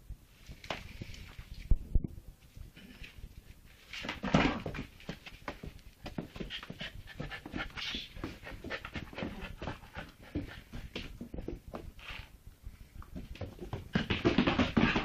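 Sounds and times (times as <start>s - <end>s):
dogs panting: 6.2s - 11.5s.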